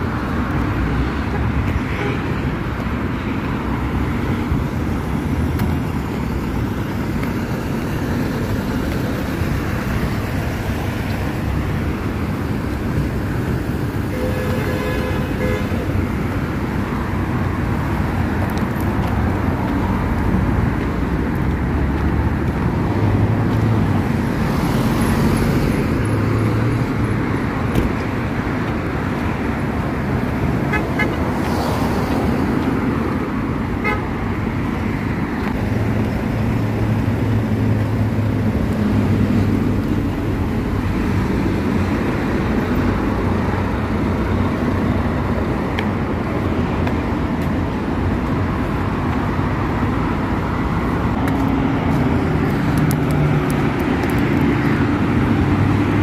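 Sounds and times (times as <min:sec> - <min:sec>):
cars passing: 0:00.0 - 0:56.0
car horn toots: 0:14.1 - 0:15.7.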